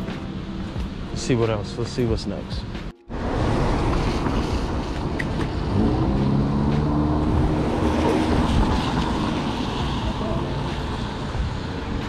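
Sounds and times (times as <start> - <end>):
street traffic rush: 0.0 - 12.0
vehicle engine rising in pitch: 3.1 - 11.3.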